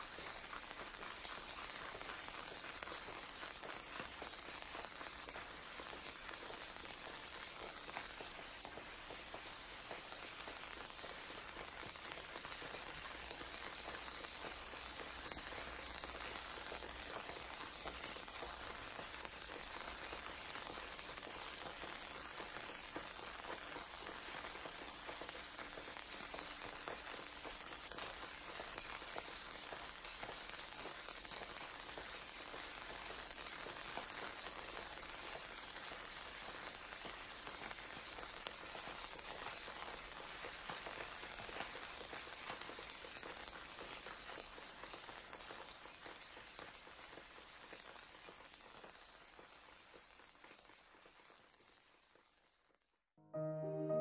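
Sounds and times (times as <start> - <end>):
dense crackling patter: 0.0 - 51.9.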